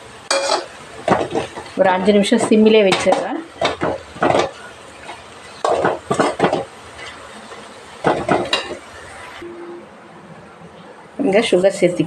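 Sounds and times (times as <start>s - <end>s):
metal spoon scraping a pan: 0.3s - 7.2s.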